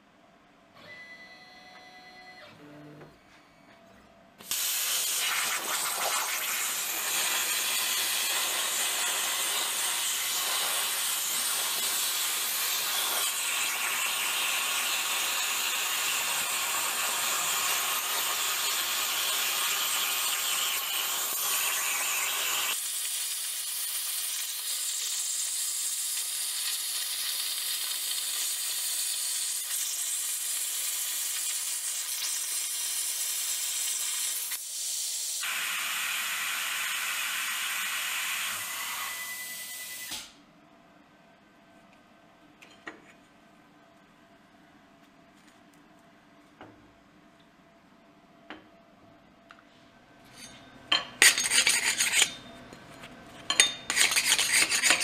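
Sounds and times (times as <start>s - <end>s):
plasma cutter torch hissing: 4.4s - 40.3s.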